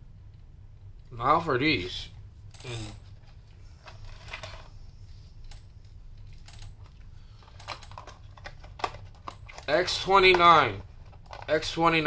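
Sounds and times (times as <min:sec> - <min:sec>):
packaging clicks and rustles: 0:06.4 - 0:11.8.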